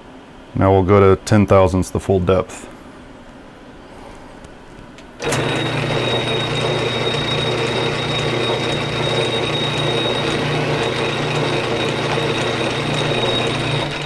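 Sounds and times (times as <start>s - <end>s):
lathe running with hum and whine: 5.2s - 14.0s.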